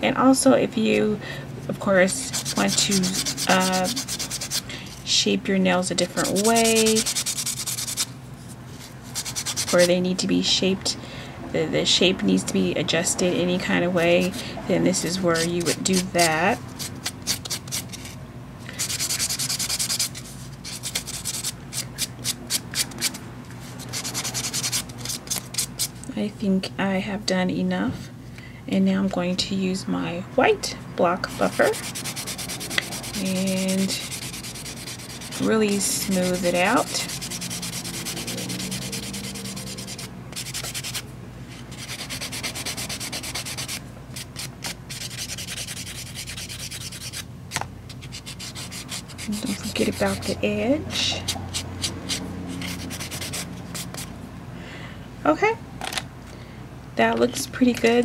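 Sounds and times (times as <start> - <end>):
nail buffer rubbing on nail: 2.2 - 4.7, 6.2 - 8.1, 9.2 - 9.9, 18.8 - 21.6, 23.8 - 26.0, 31.3 - 41.0, 41.7 - 47.2, 47.9 - 54.1
nail buffer rasping: 31.4 - 41.0.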